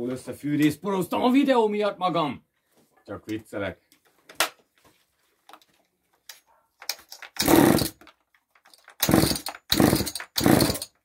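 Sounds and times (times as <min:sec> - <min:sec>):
chainsaw recoil starter pulls: 0:06.9 - 0:11.0
chainsaw engine turning over: 0:07.1 - 0:08.1, 0:08.8 - 0:11.0.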